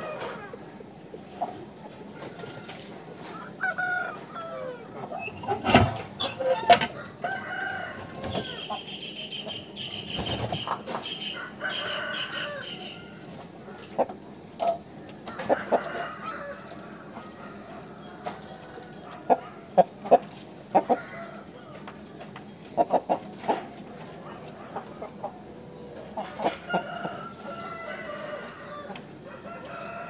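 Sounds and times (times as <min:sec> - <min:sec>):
chickens clucking: 0:00.0 - 0:30.0
rooster crowing: 0:02.2 - 0:05.3, 0:06.3 - 0:08.8, 0:11.2 - 0:13.3, 0:15.3 - 0:19.8, 0:20.8 - 0:21.9, 0:26.2 - 0:30.0.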